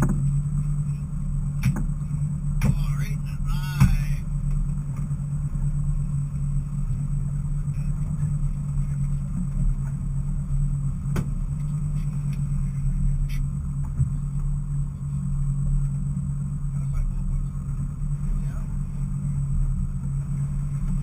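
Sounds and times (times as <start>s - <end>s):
boat engine droning: 0.0s - 21.0s.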